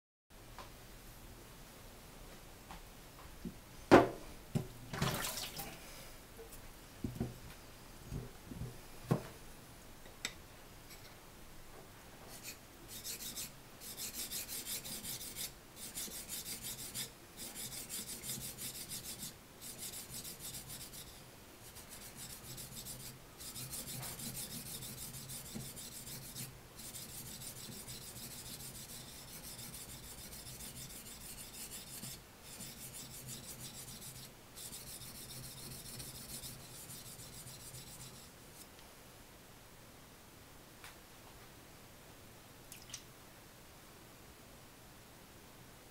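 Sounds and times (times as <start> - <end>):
blade scraping on whetstone: 12.4 - 38.3.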